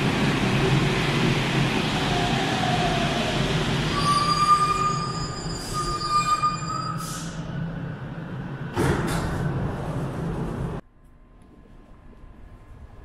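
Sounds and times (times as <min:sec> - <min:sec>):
low train rumble: 0:00.0 - 0:10.9
train brakes squealing: 0:03.9 - 0:07.5.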